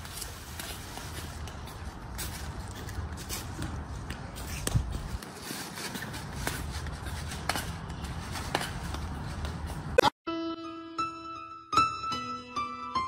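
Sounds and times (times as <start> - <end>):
footsteps on paving: 0.0 - 10.0
electric piano tune: 10.3 - 13.0.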